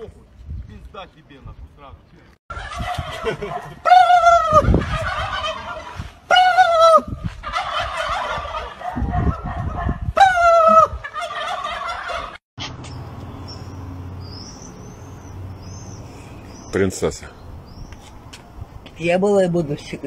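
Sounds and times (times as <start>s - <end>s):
turkeys gobbling: 2.5s - 12.4s
small birds chirping: 12.7s - 19.2s.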